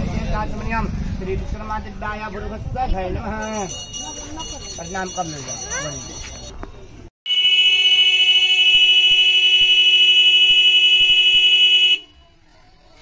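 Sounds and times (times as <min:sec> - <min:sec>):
buzzing alarm tone: 0:07.3 - 0:12.0.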